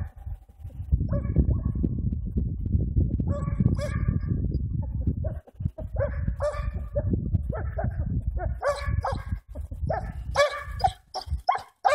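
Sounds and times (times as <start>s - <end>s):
hound baying: 9.9s - 11.9s.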